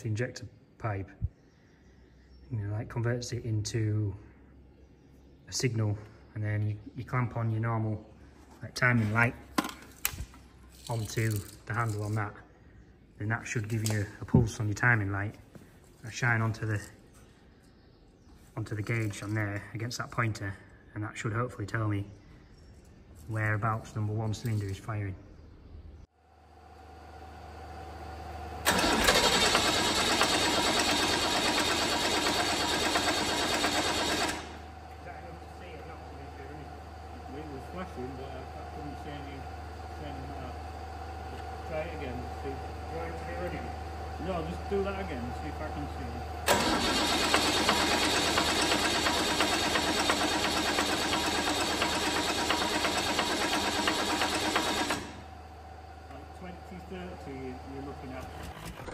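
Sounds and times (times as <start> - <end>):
diesel engine starting and running: 26.6 - 58.9
tractor diesel engine clattering: 28.7 - 34.6, 46.5 - 55.2.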